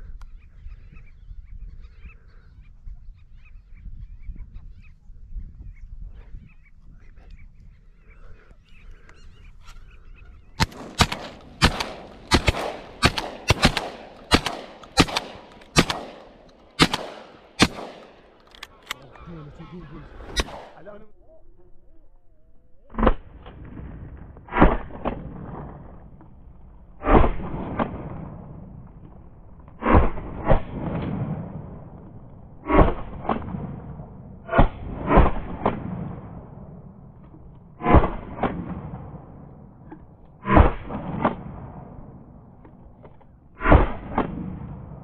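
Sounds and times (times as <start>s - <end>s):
shotgun shots: 10.6s - 18.4s, 20.2s - 20.8s, 22.9s - 26.0s, 27.0s - 28.7s, 32.6s - 36.6s, 43.6s - 45.0s.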